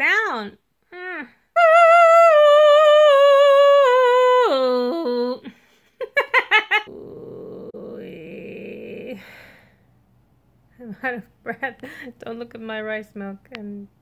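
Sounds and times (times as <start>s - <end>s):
woman laughing: 5.4s - 6.9s
woman throat singing: 6.9s - 9.6s.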